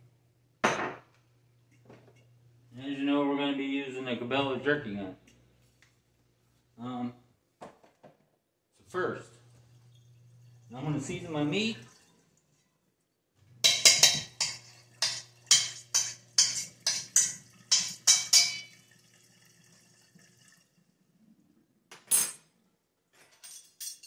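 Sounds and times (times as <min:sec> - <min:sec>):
metal spoon clinking in steel bowl: 0:13.6 - 0:18.8, 0:23.3 - 0:24.0.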